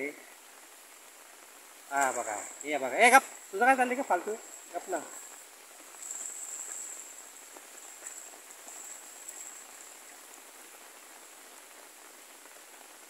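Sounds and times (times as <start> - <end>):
high insect buzz: 1.9 - 10.9.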